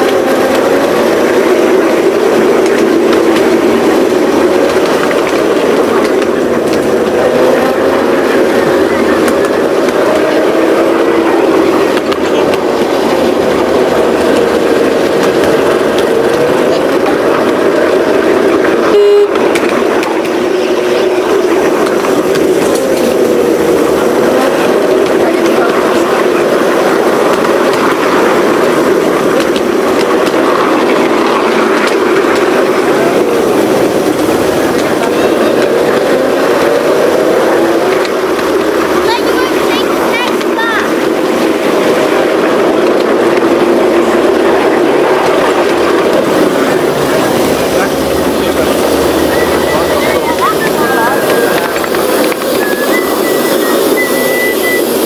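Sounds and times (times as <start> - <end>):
wheels rumbling on rail: 0.0 - 55.0
wavering whine: 44.0 - 54.2.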